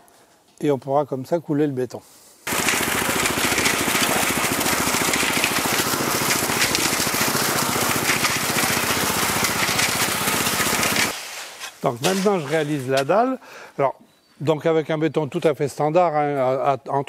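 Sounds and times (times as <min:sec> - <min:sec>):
concrete mixer running: 0:02.5 - 0:11.2.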